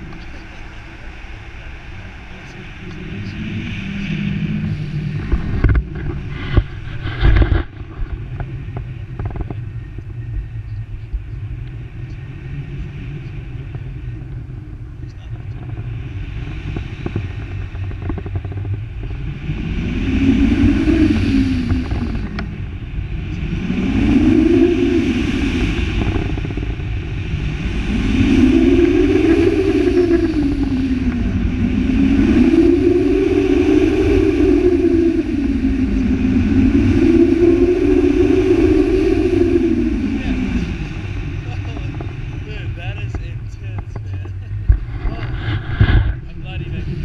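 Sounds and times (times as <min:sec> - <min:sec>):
low rumble: 0:00.0 - 0:47.0
wind rushing over microphone: 0:00.0 - 0:47.0
whistling tone rising and falling: 0:27.9 - 0:41.5.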